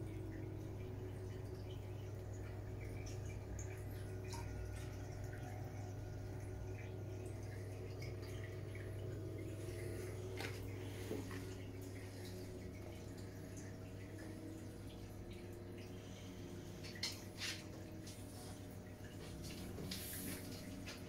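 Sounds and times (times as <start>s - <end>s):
aquarium pumps humming: 0.0s - 21.0s
water trickling and dripping: 0.0s - 21.0s.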